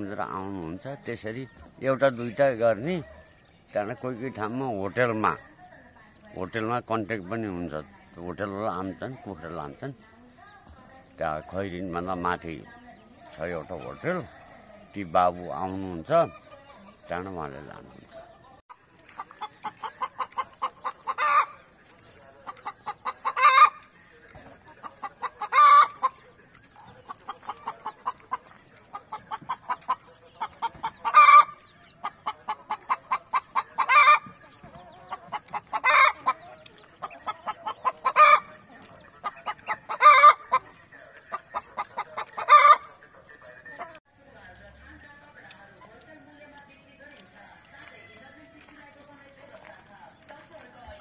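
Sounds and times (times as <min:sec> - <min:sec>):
chicken clucking and squawking: 0:11.5 - 0:44.0.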